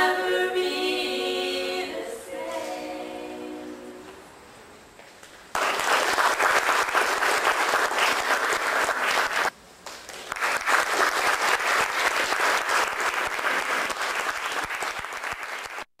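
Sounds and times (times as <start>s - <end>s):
audience applauding: 5.5s - 16.0s.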